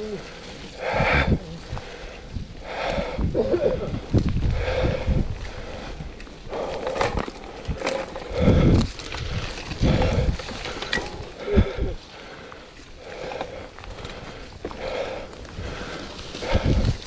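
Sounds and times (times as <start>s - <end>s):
low thumps from trail bumps: 0.0s - 17.0s
rider breathing hard: 0.0s - 17.0s
bike clicks and rattles: 3.9s - 17.0s.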